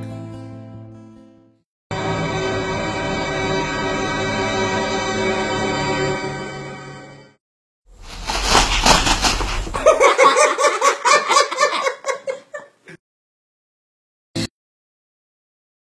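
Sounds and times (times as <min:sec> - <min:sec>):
person laughing: 0:08.4 - 0:13.0.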